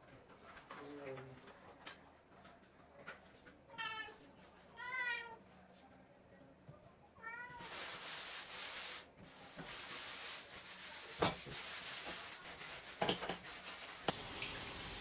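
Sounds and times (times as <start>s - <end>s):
sponge scouring metal hob: 7.6s - 15.0s.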